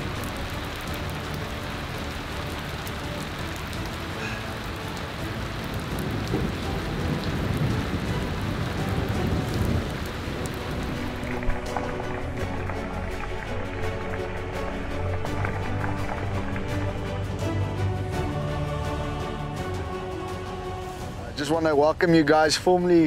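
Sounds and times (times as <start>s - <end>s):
steady rain falling: 0.0s - 23.0s
low rumble of thunder: 5.6s - 11.6s.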